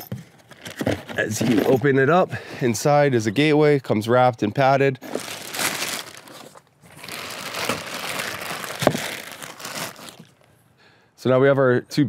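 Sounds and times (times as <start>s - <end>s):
plastic wrapping crinkling: 5.0s - 10.5s.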